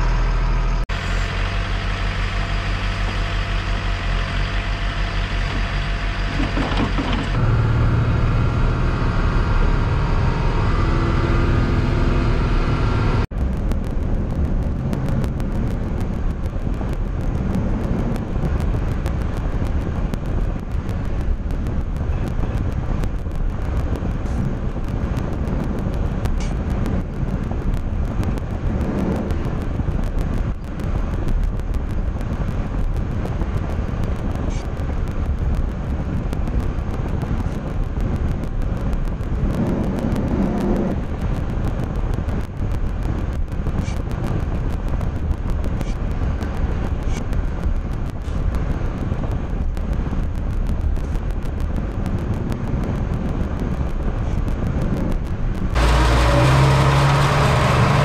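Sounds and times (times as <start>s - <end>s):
engine idling: 0.0s - 33.6s
heavy diesel truck engine: 0.0s - 58.0s.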